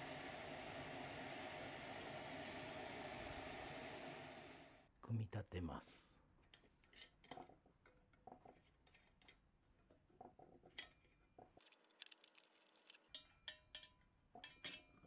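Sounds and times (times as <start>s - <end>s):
metal parts clicking and clinking: 10.7s - 14.9s.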